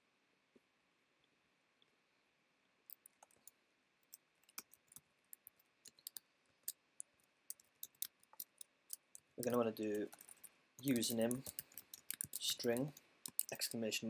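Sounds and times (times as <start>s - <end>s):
typing on keyboard: 2.9s - 3.5s, 4.1s - 13.8s.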